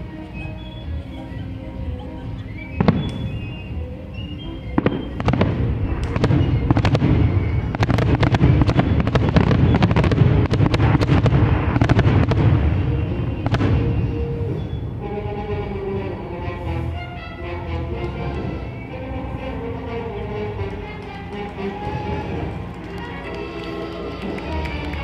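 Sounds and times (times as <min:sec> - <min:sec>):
music: 0:00.0 - 0:25.0
fireworks bangs and cracks: 0:02.8 - 0:03.5, 0:04.8 - 0:14.8
low rumble: 0:05.3 - 0:16.6.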